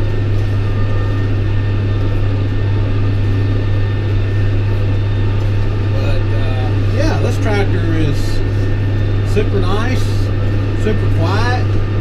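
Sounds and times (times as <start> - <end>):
tractor diesel engine drone: 0.0 - 12.0.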